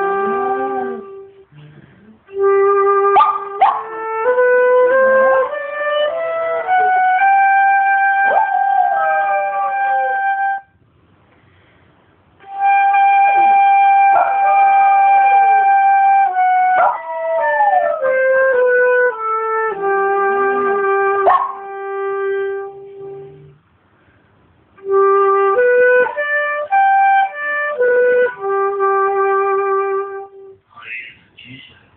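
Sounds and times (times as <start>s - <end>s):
wind instrument slow melody: 0.0s - 10.8s, 12.4s - 30.6s
dog howling: 6.1s - 10.6s, 13.0s - 18.6s, 20.6s - 21.6s.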